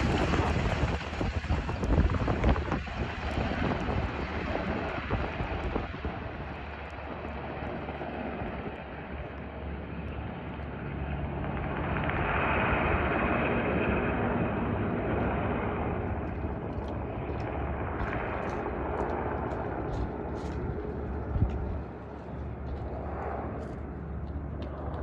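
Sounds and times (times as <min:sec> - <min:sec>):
helicopter rotor and engine: 0:00.0 - 0:25.0.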